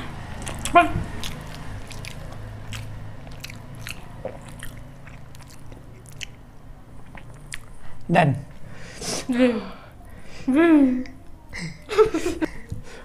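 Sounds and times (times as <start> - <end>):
person chewing with wet clicks: 0.2 - 8.1.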